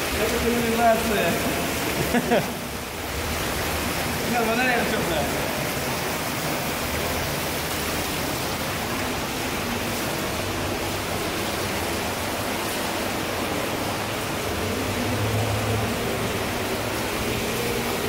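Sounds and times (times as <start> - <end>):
water rushing through tunnel: 0.0 - 18.0.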